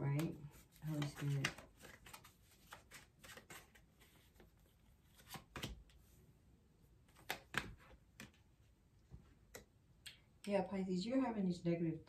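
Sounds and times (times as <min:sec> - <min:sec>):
cards snapping and tapping: 0:05.2 - 0:06.0, 0:07.1 - 0:08.4.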